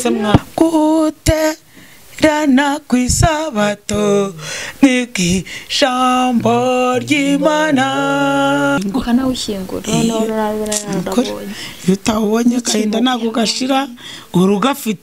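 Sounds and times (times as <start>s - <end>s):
woman singing unaccompanied: 2.2s - 14.0s.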